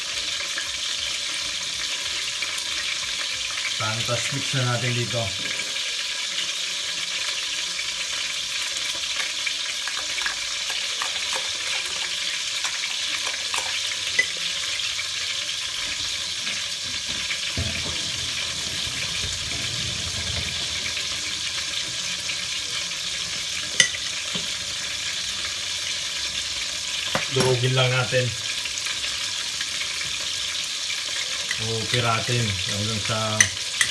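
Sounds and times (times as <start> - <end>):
meat sizzling in a pot: 0.0 - 33.9
utensil clinking on glass bowl: 13.5 - 14.4, 23.8 - 24.0, 33.4 - 33.9.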